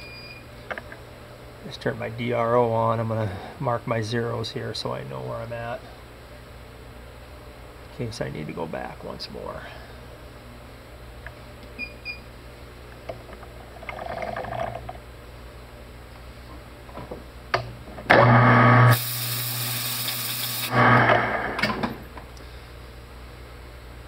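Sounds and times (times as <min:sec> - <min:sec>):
low hum: 0:18.1 - 0:19.6, 0:20.6 - 0:24.0
metal lathe running: 0:18.1 - 0:21.7
compressed air hissing: 0:18.9 - 0:21.6.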